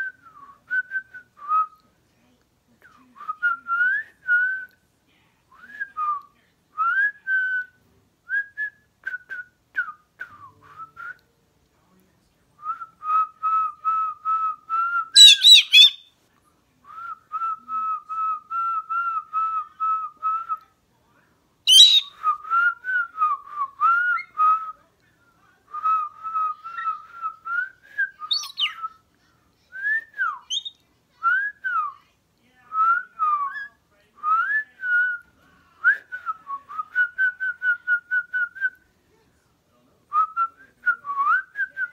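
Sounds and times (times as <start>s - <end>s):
cockatoo whistling: 15.2s - 16.1s, 21.7s - 22.2s, 28.2s - 28.9s, 30.2s - 30.7s
shrill bird calls: 15.2s - 16.1s, 21.7s - 22.1s, 28.3s - 28.8s, 30.5s - 30.7s
person whistling: 21.7s - 22.1s, 28.1s - 28.7s.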